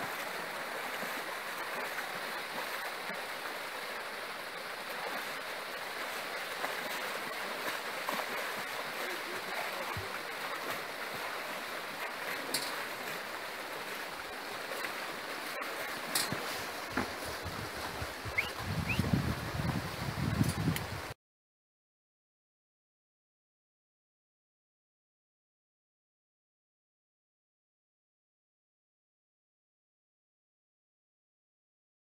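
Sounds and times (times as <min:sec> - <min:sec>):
river rushing over rocks: 0:00.0 - 0:20.3.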